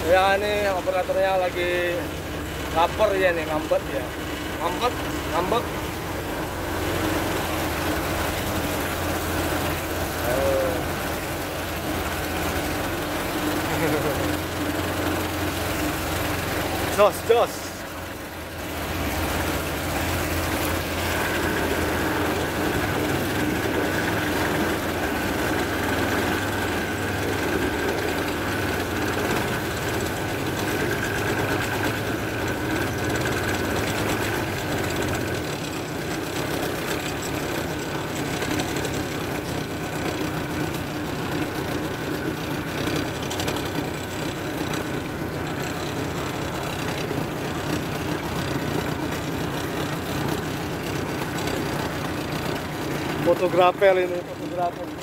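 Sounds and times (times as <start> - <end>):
boat diesel engine drone: 0.0 - 55.0.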